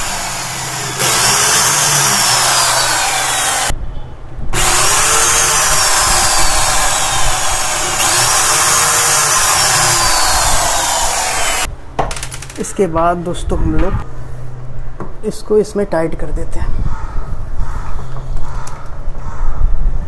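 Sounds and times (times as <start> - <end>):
electric drill on wood: 0.0 - 3.7, 4.6 - 11.7.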